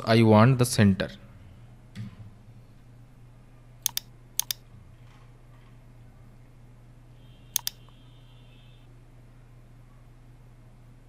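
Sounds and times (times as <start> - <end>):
computer mouse double clicks: 3.8 - 4.6, 7.6 - 7.8.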